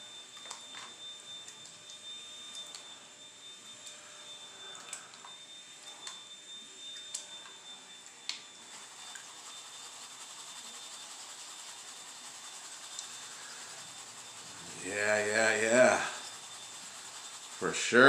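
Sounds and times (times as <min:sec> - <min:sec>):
water swirling in pan: 0:08.7 - 0:18.0.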